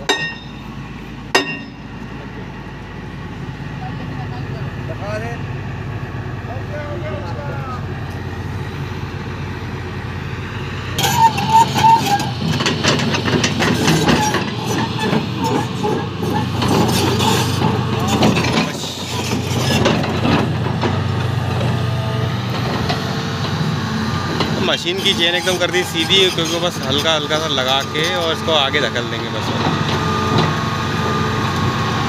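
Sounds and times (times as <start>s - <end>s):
steel tracks clanking: 0.0s - 2.6s, 9.9s - 31.6s
excavator diesel engine running: 0.0s - 32.0s.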